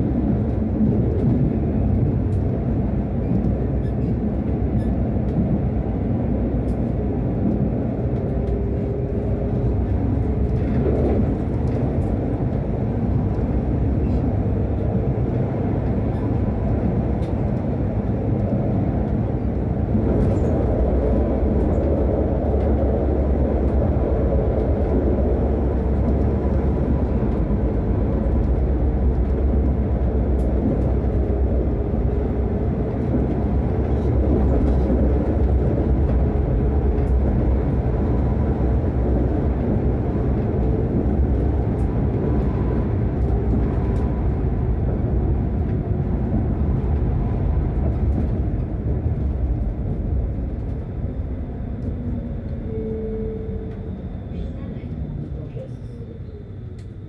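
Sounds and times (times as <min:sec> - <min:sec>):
tram wheels rumbling: 0:00.0 - 0:57.0.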